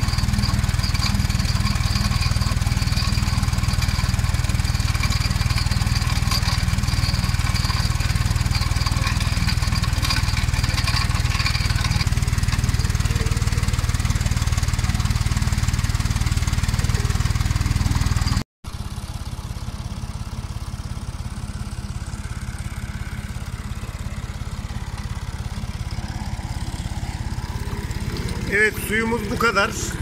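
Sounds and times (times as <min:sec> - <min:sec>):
tractor engine running: 0:00.0 - 0:30.0.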